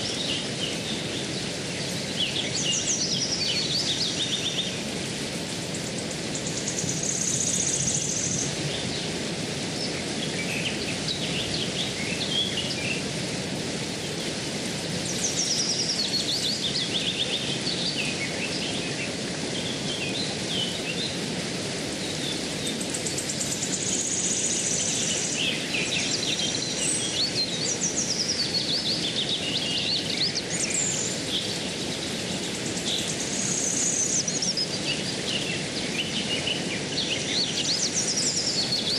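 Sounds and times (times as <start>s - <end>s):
birds chirping and trilling: 22.0s - 38.9s.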